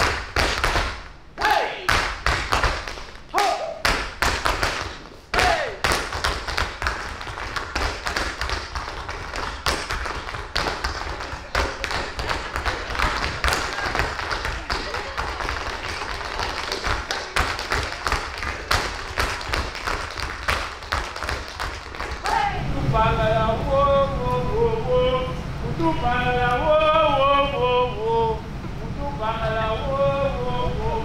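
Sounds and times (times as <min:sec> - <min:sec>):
tap shoes striking stage floor: 0:00.0 - 0:01.1, 0:01.9 - 0:03.2, 0:03.8 - 0:22.4.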